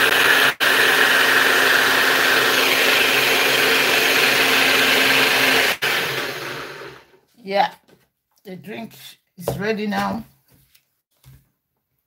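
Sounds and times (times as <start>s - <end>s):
blender motor running: 0.0s - 7.2s.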